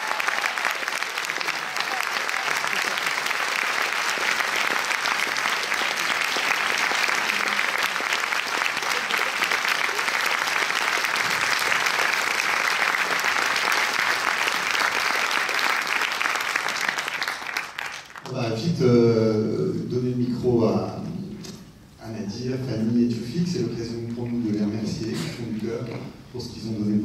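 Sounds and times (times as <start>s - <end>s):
audience applauding: 0.0s - 18.4s.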